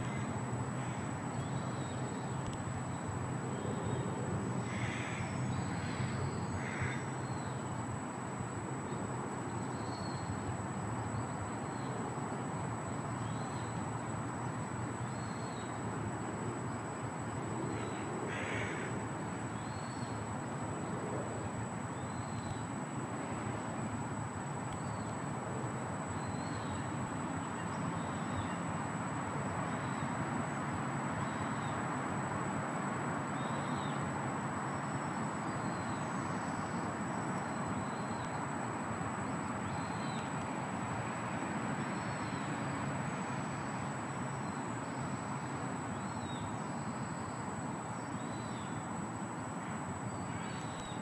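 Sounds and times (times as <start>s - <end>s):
distant traffic hum: 0.0s - 51.0s.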